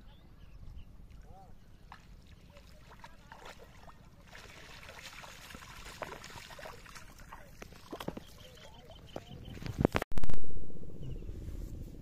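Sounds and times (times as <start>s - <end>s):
water trickling and splashing: 1.0s - 9.6s
small drips and splashes: 1.9s - 9.0s.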